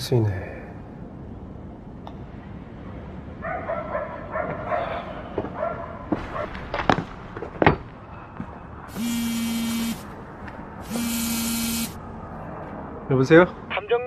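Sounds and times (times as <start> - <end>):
mobile phone buzzing: 8.9 - 10.1, 10.8 - 12.0
short high whines: 8.9 - 10.1, 10.8 - 12.0.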